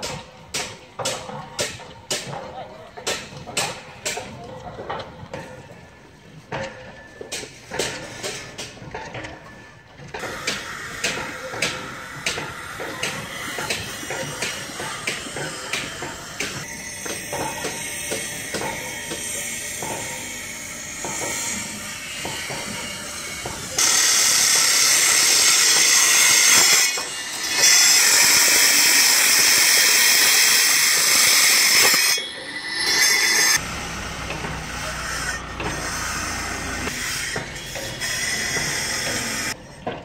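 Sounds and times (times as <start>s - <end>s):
construction site background: 0.0s - 40.0s
angle grinder whining: 10.3s - 39.6s.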